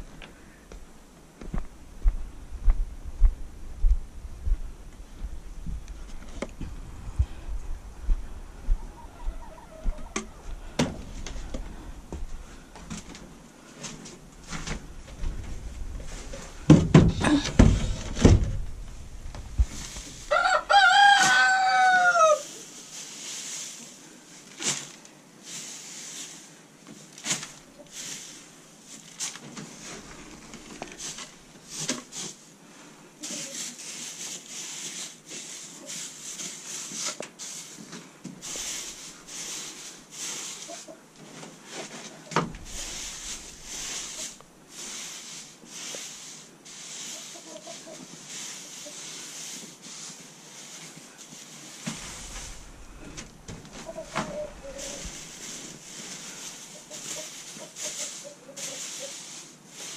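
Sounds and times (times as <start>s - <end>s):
rooster crowing: 8.8s - 10.4s, 20.3s - 22.5s
wood shavings rustling: 10.4s - 59.9s
heavy thumps: 14.4s - 20.3s.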